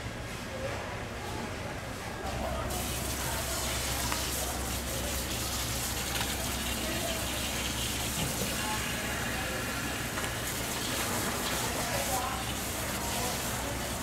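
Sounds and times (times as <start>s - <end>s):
faint voices: 0.4s - 14.0s.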